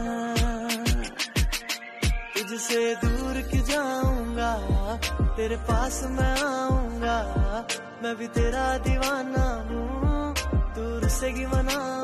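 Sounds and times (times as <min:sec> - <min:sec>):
pop song with sung vocal: 0:00.0 - 0:12.0
deep kick drums: 0:03.0 - 0:07.6, 0:08.4 - 0:11.7
sustained bass: 0:03.0 - 0:07.7, 0:08.4 - 0:11.8.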